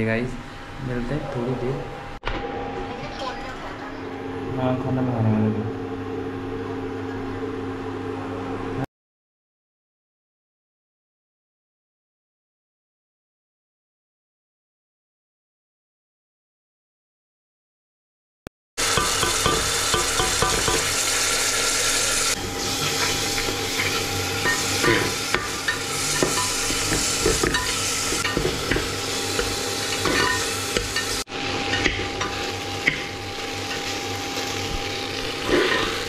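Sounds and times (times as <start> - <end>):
onions sizzling in oil: 18.8 - 36.0
metal spoon scraping a pot: 29.4 - 33.1, 35.4 - 36.0.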